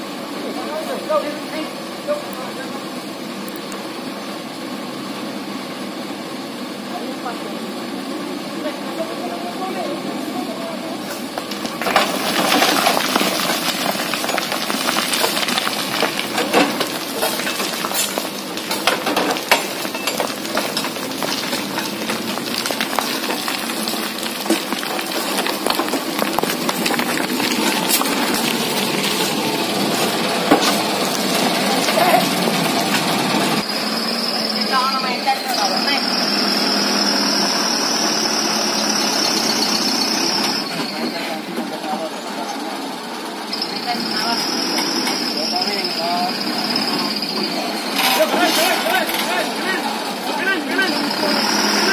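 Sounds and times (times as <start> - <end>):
dump truck engine running: 0.0 - 51.9
soil and stones pouring: 11.2 - 33.7, 46.8 - 51.9.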